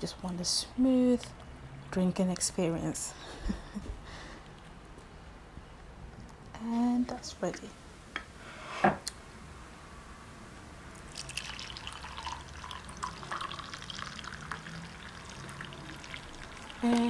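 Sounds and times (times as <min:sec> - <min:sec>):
tea pouring into cup: 0:10.9 - 0:17.0.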